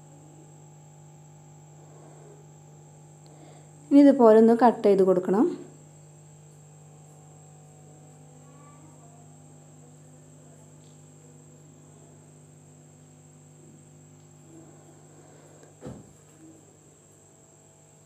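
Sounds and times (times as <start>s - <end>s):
faint background hum: 0.0s - 18.0s
high continuous whine: 0.0s - 18.0s.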